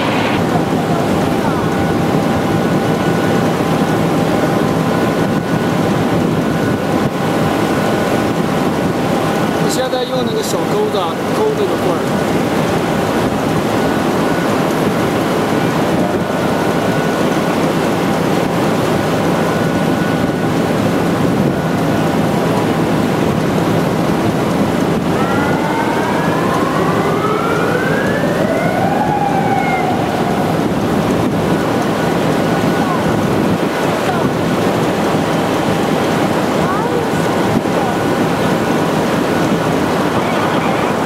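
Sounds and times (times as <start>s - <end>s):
pitched whine with overtones: 0.0s - 3.4s, 23.7s - 33.0s
steel mill rushing roar: 0.0s - 41.0s.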